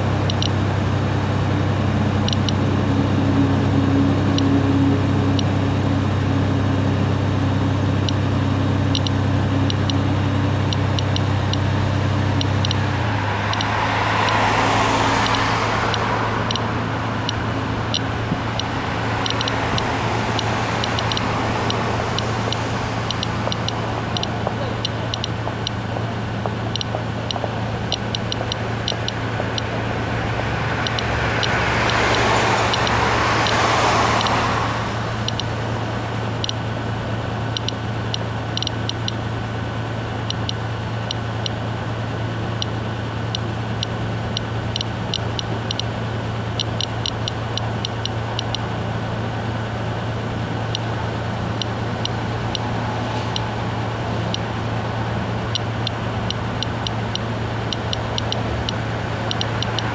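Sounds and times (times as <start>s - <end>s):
geiger counter clicking: 0.0s - 0.6s, 2.2s - 2.6s, 8.9s - 14.5s, 15.2s - 29.9s, 30.7s - 34.6s, 35.2s - 35.6s, 36.3s - 36.6s, 37.5s - 39.2s, 40.2s - 41.6s, 42.6s - 48.8s, 50.6s - 53.6s, 54.2s - 54.6s, 55.4s - 59.9s
steady low hum: 0.0s - 59.9s
vehicle passing: 8.9s - 38.7s, 43.6s - 59.9s.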